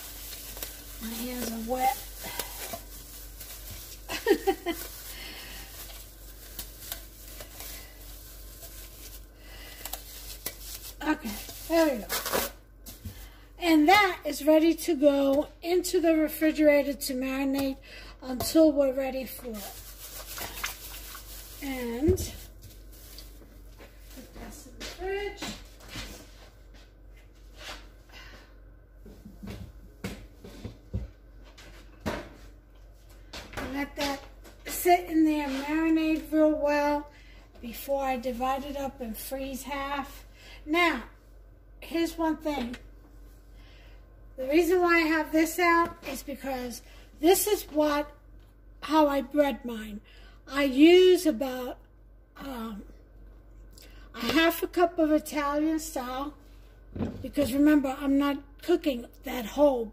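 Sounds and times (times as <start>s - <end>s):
plastic cap rustling and crinkling: 0.0s - 13.0s, 19.4s - 24.0s
low steady hum: 0.0s - 59.9s.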